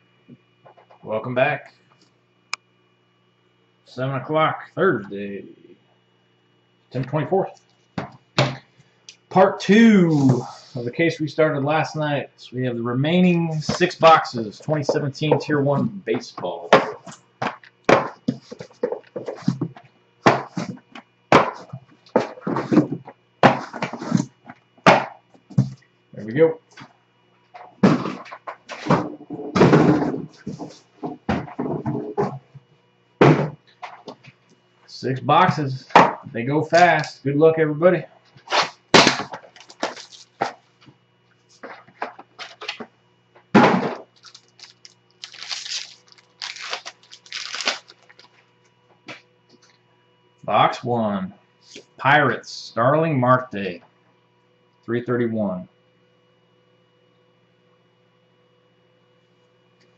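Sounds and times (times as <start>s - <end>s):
cardboard rustling and scraping: 10.0s - 10.8s, 17.9s - 24.3s, 27.8s - 32.4s, 38.4s - 40.9s, 44.0s - 48.4s
plastic wrap tearing and crinkling: 39.5s - 40.4s, 44.1s - 48.4s.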